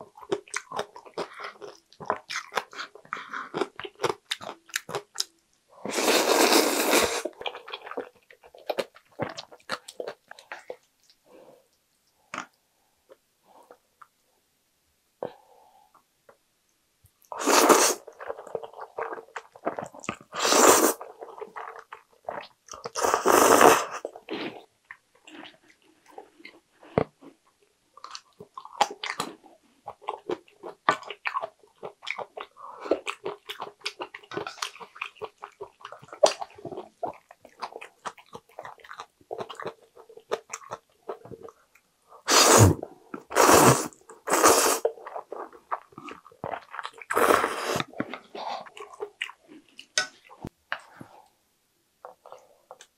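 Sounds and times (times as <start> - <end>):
wet chewing: 0.0 - 5.4, 29.9 - 41.8, 42.6 - 50.9
noodle slurps: 5.9 - 7.4, 17.3 - 21.8, 22.9 - 24.0, 42.2 - 45.5, 46.5 - 49.0.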